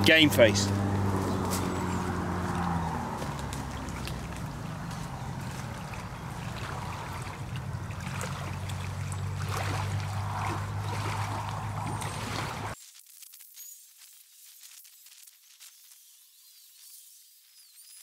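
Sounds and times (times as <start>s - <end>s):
speedboat engine humming: 0.0s - 12.8s
water churning: 0.0s - 12.8s.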